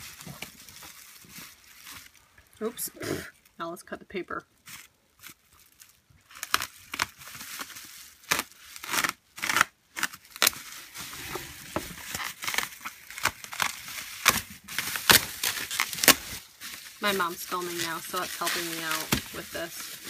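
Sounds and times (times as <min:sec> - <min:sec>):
bubble wrap crackling: 0:00.0 - 0:03.6, 0:04.5 - 0:20.0.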